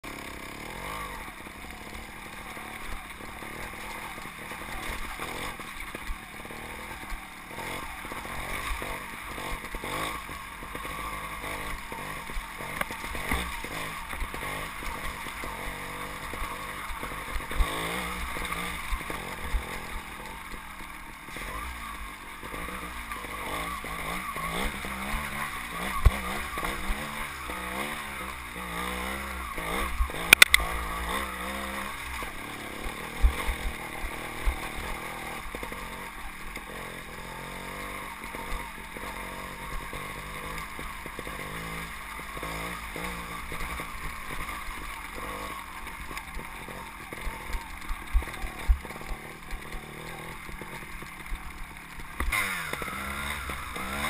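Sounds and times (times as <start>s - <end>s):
motorcycle engine revving: 0.0s - 54.0s
motorcycle knocking over rocks: 29.1s - 54.0s.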